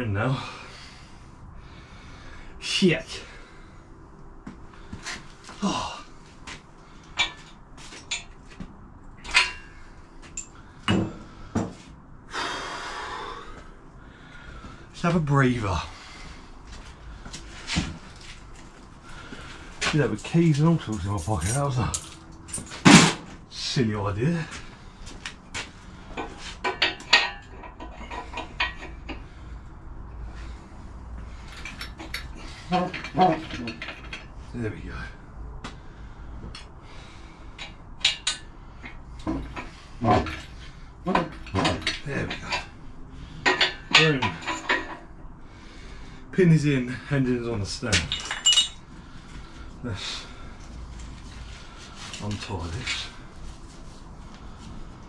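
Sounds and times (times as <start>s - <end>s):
metal clanking and clinking: 7.1s - 8.4s, 9.2s - 11.2s, 20.0s - 23.3s, 26.1s - 29.3s, 31.3s - 34.4s, 37.6s - 42.8s, 43.4s - 45.2s, 47.8s - 48.9s
metal knocks and clunks: 10.8s - 11.8s.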